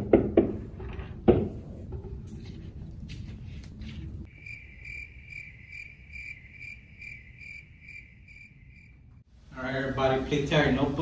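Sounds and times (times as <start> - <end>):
cricket chirping: 4.3 - 9.2.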